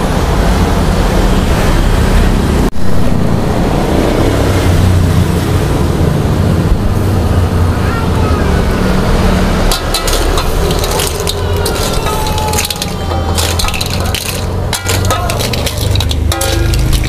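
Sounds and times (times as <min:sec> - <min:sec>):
road traffic: 0:00.0 - 0:17.0
cooking fire roaring under wok: 0:08.9 - 0:17.0.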